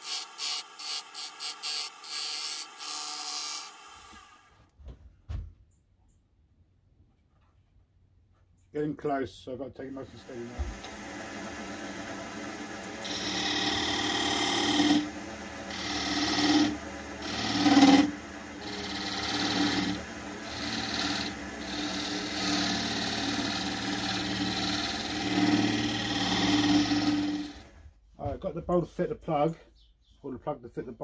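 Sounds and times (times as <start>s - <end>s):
chisel scraping wood on lathe: 0.0s - 4.4s, 11.6s - 27.7s
lathe humming: 0.0s - 4.4s, 10.0s - 27.8s.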